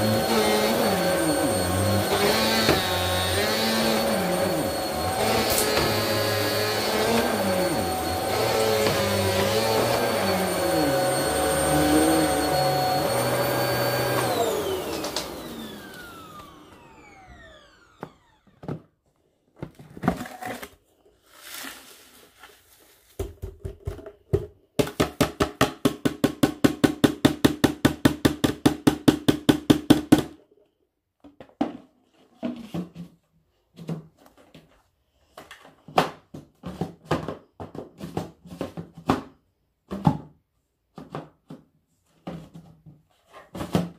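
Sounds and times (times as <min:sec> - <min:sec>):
vacuum cleaner running on carpet: 0:00.0 - 0:18.4
vacuum motor winding down: 0:00.0 - 0:18.6.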